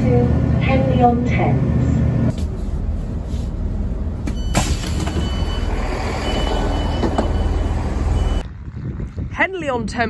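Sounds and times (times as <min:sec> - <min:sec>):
train engine rumbling: 0:00.0 - 0:10.0
faint high beep: 0:04.3 - 0:08.4.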